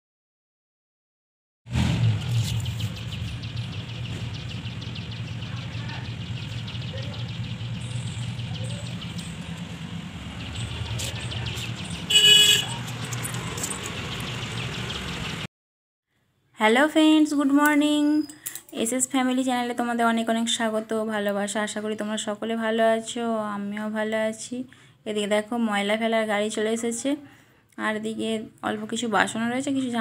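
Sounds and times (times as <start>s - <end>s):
vehicle engine running: 1.7s - 15.5s
short horn toot: 12.1s - 12.8s.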